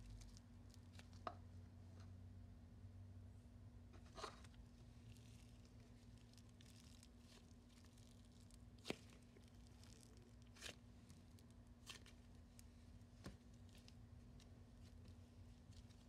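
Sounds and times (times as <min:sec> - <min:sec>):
faint steady hum: 0:00.0 - 0:16.0
slime being stretched by hand: 0:04.2 - 0:16.0.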